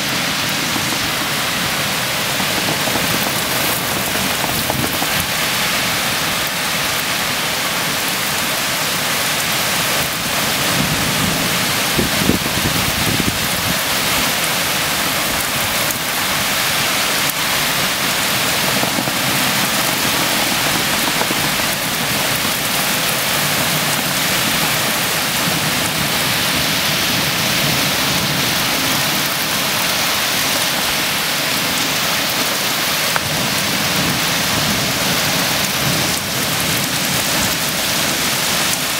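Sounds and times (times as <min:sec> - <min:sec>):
low thunder rumble: 0:00.0 - 0:05.4, 0:10.0 - 0:16.9
torrential rain pouring: 0:00.0 - 0:38.9.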